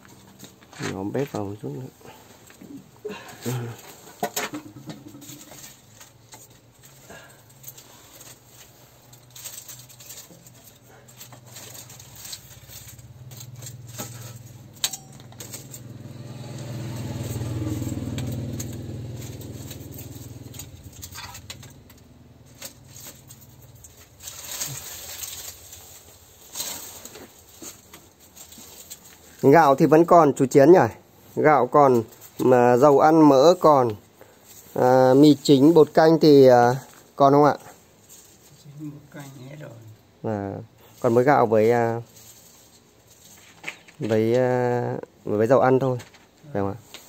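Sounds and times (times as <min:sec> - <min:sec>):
dry twigs snapping: 0:05.2 - 0:29.4
vehicle engine passing by: 0:11.7 - 0:25.7.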